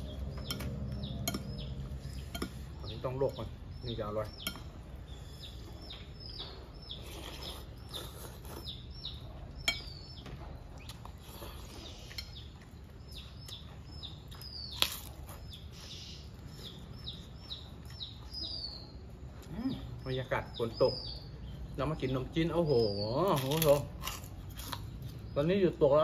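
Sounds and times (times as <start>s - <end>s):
small birds chirping: 0.0s - 26.0s
spoon clinking against a bowl: 0.3s - 3.4s, 4.3s - 4.8s, 9.6s - 10.1s.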